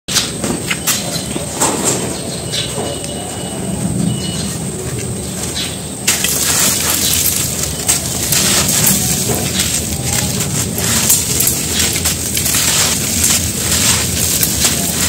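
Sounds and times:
dirt crumbling in hands: 6.0s - 15.0s.

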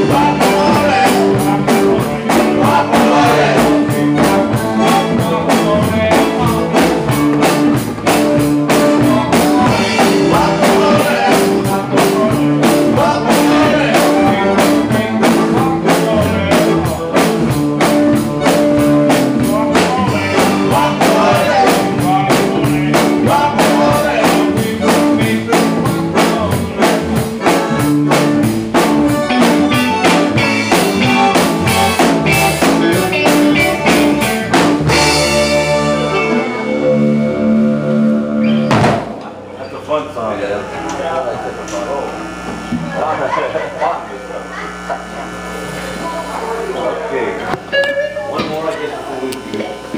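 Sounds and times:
drum kit beat: 0.0s - 39.2s
electric guitar: 0.0s - 39.7s, 40.3s - 49.9s
bass guitar: 0.0s - 49.9s.

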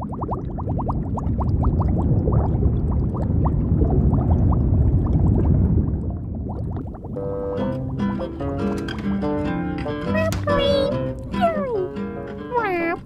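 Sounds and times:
low churning water rumble: 0.0s - 8.2s
underwater bubbles blipping: 0.0s - 8.7s.

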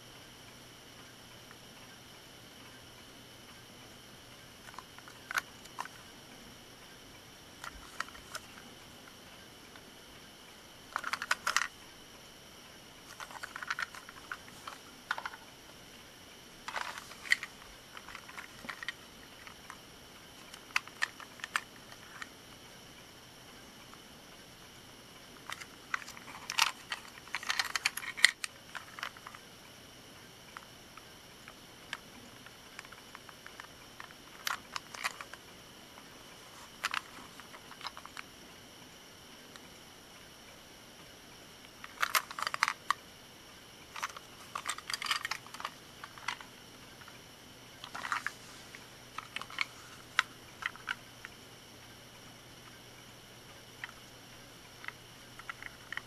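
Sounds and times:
plastic toy clicks and rattles: 4.6s - 6.0s, 10.9s - 11.7s, 13.1s - 15.5s, 16.7s - 19.8s, 20.4s - 22.3s, 25.4s - 29.4s, 31.9s - 35.4s, 36.8s - 38.2s, 41.8s - 43.0s, 43.9s - 47.2s, 47.8s - 48.4s, 49.2s - 51.0s, 54.8s - 56.0s.

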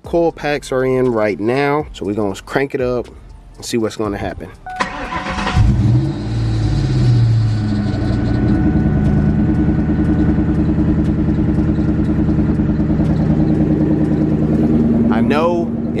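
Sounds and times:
car engine revving then idling: 4.8s - 16.0s.

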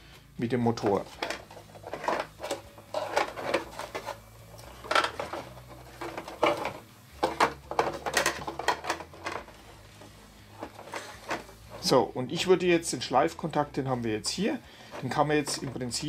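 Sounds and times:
hands handling plastic toy: 0.7s - 12.5s.

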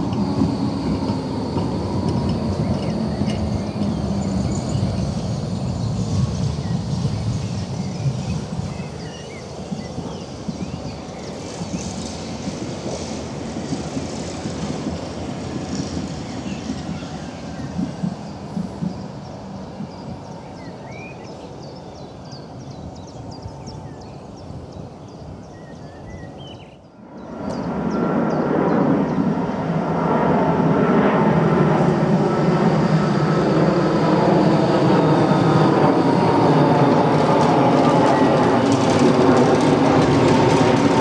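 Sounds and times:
approaching tram rumble: 0.0s - 41.0s
distant trams humming: 0.0s - 41.0s
small birds chirping: 1.5s - 13.2s, 15.1s - 29.4s.

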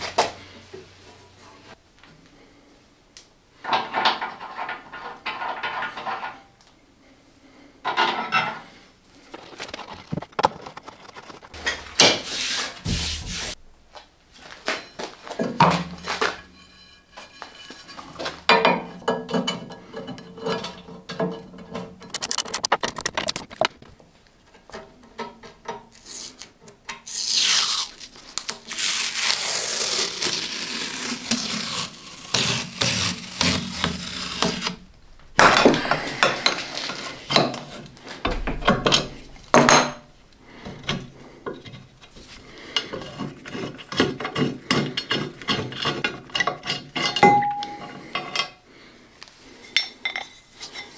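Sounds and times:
metal scraping: 7.9s - 24.0s, 28.8s - 48.6s.

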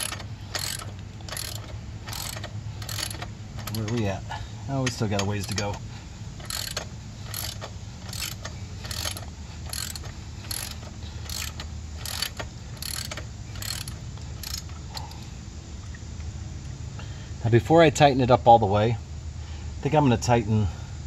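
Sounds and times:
socket ratchet wrench clicking: 0.0s - 4.0s, 6.4s - 15.1s.

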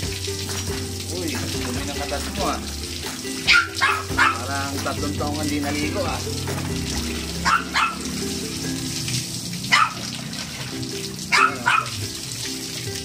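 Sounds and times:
water splashing over dog: 0.0s - 13.0s
dog barking: 3.4s - 4.6s, 7.4s - 8.1s, 9.7s - 10.1s, 11.3s - 12.1s.

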